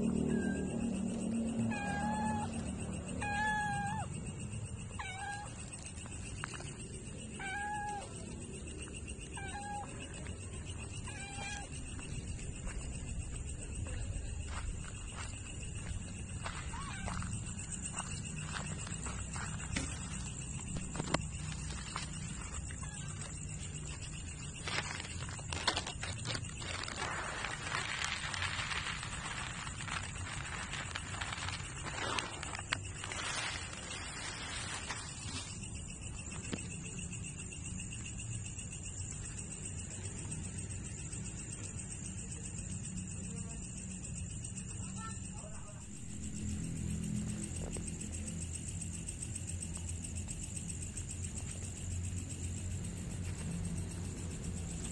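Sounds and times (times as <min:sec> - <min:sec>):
cat meowing: 0:05.0 - 0:05.5, 0:07.4 - 0:08.1, 0:09.4 - 0:09.9
dry kibble pouring: 0:26.8 - 0:33.4.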